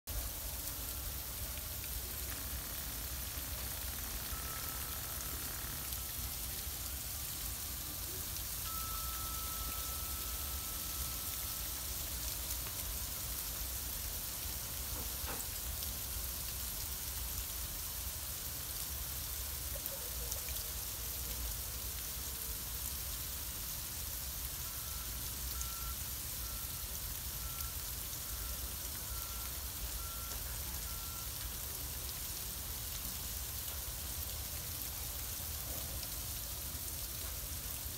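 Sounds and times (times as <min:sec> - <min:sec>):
freezing rain pattering: 0:00.1 - 0:37.9
faint high beeping: 0:03.6 - 0:12.2, 0:24.7 - 0:31.4.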